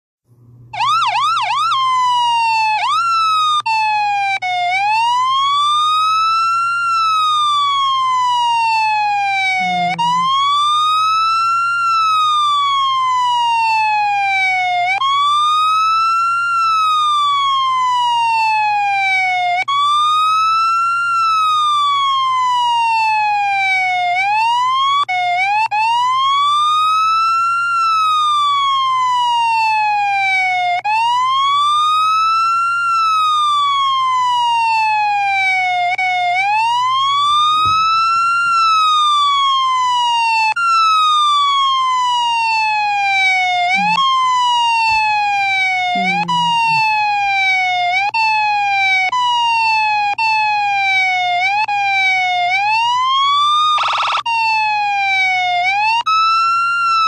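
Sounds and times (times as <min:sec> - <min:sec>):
steady low hum: 0:00.3 - 0:00.8
police siren wailing: 0:00.7 - 0:57.0.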